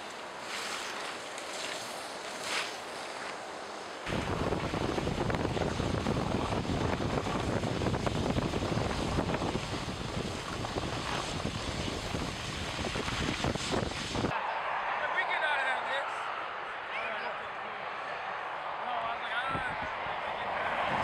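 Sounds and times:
skis hissing over snow: 0.0s - 4.1s, 7.6s - 14.3s
wind rushing over microphone: 4.1s - 14.4s, 18.3s - 21.0s.

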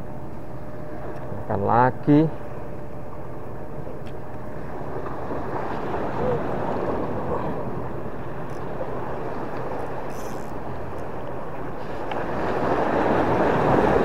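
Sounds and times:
sea waves washing: 0.6s - 14.0s.

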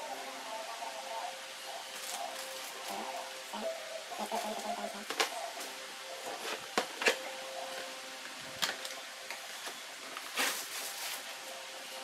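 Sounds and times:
plastic packaging crinkling: 9.6s - 11.6s.

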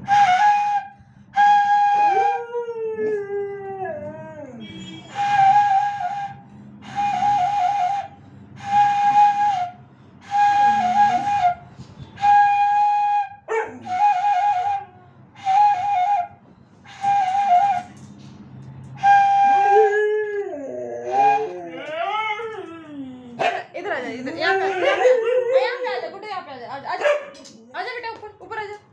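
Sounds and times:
bamboo flute playing: 0.0s - 2.6s, 4.8s - 18.1s, 19.0s - 21.9s
dog howling: 1.8s - 4.6s, 19.0s - 23.4s, 24.3s - 26.1s.

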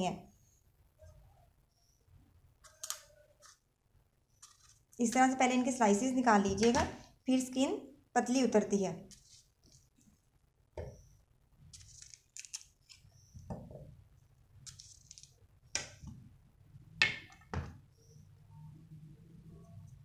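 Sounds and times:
knife cutting and scraping peaches: 4.3s - 5.4s.

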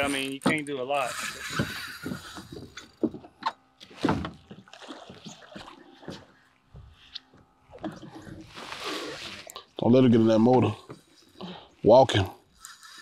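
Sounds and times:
water splashing against boat: 0.1s - 7.0s.

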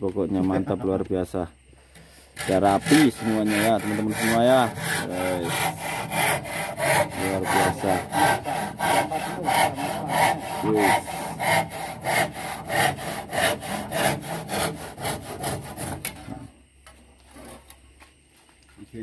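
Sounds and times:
handsaw cutting wood: 2.2s - 16.5s.

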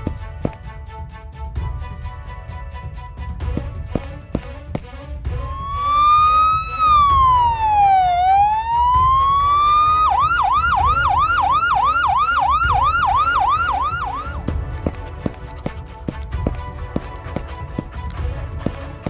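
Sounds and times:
ambulance siren: 5.4s - 14.5s.

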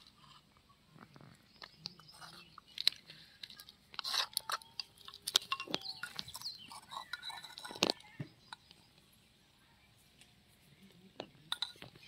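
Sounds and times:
spoons tapping clay pots: 1.6s - 8.8s, 11.2s - 12.0s.

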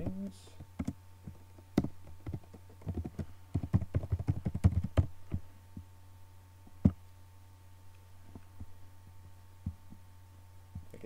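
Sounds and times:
low steady hum: 0.0s - 11.0s
keyboard typing clicks: 0.8s - 1.0s, 1.8s - 5.4s.

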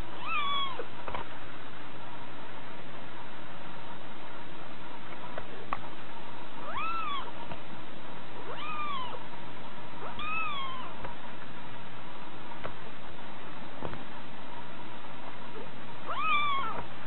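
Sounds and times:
kitten mewing: 0.0s - 0.9s, 6.6s - 7.4s, 8.4s - 9.2s, 10.0s - 11.0s, 16.1s - 16.9s.

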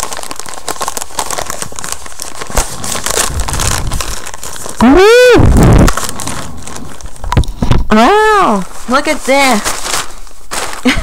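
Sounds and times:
plastic mailer bag crinkling: 0.0s - 11.0s
person exclaiming: 4.8s - 5.9s, 7.9s - 8.6s.

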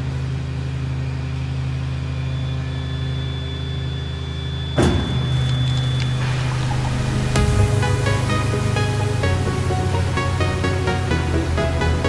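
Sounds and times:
faint high whine: 0.0s - 12.0s
sharp mechanical clunk: 4.8s - 6.0s
truck engine running: 4.8s - 12.0s.

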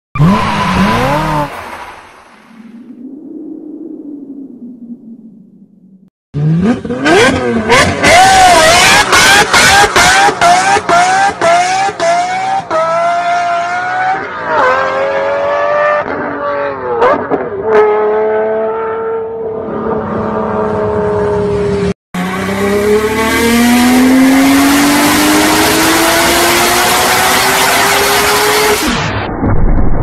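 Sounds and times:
tyre squeal: 0.2s - 1.5s
car engine revving on dyno: 6.4s - 16.2s, 22.2s - 28.9s
supercar engine accelerating: 6.4s - 28.8s.

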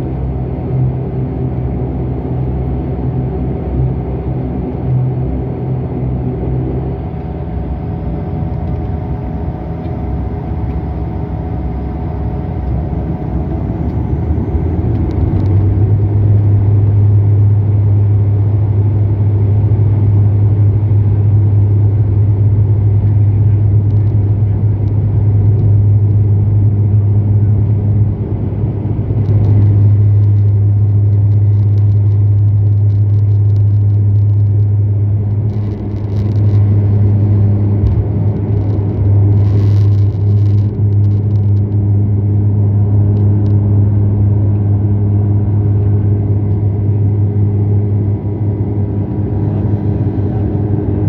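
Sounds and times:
low propeller drone: 0.0s - 51.0s
takeoff roll rumble: 0.0s - 51.0s.

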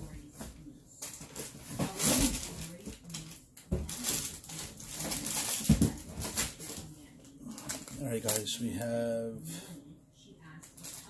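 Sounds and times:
packaging crinkling: 1.0s - 6.8s.

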